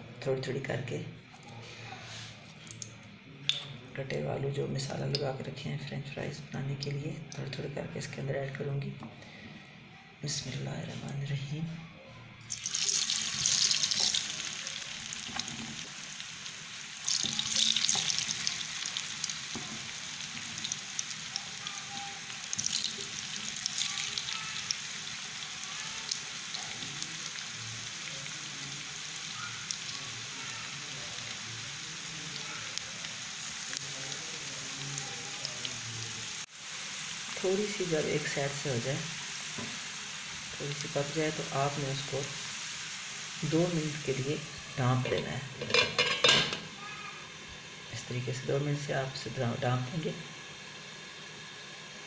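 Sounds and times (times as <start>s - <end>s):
potato strips sizzling in oil: 0.6s - 3.8s, 12.4s - 52.0s.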